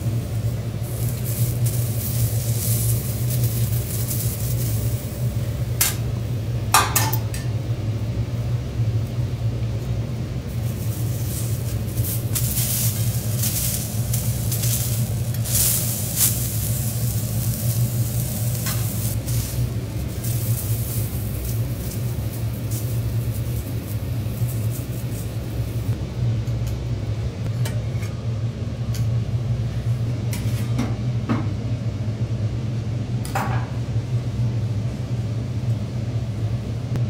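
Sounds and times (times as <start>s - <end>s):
seafood sizzling on a griddle: 0.0s - 5.7s, 10.5s - 26.0s.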